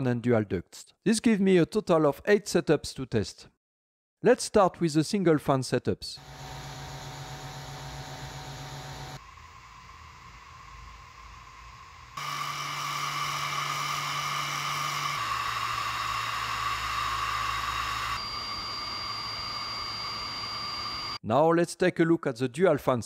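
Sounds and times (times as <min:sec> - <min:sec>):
blower fans whining: 0:06.2 - 0:21.0.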